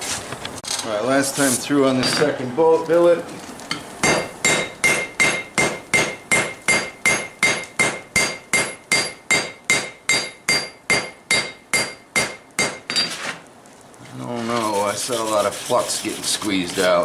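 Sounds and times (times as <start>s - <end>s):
hammer ringing on anvil: 4.0s - 13.1s.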